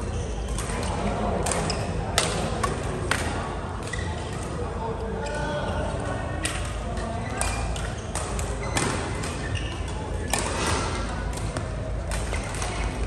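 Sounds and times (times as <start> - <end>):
shoes squeaking on court floor: 0.0 - 0.8, 3.8 - 4.4, 7.2 - 13.0
badminton rackets hitting shuttlecock: 0.5 - 4.0, 7.4 - 13.0.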